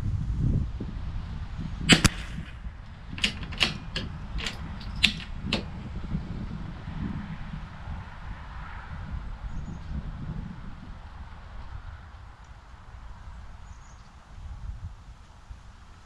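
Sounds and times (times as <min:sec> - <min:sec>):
rifle shots cracking: 0:01.9 - 0:05.5.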